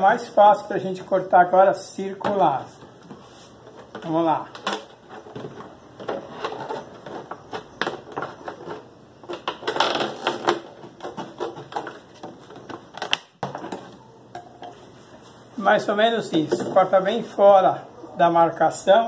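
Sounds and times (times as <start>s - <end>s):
plastic jug crackling as cut: 6.1s - 12.0s.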